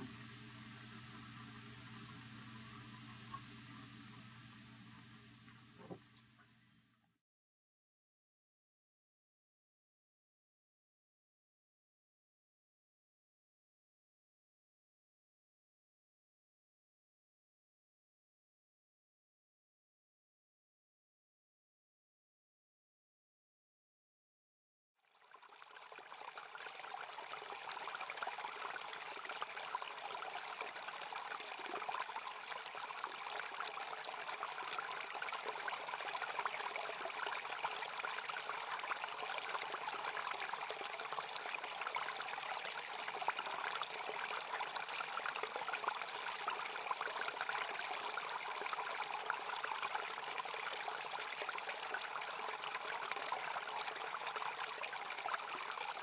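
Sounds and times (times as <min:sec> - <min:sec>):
small stream running: 0:00.0 - 0:06.1, 0:25.0 - 0:56.0.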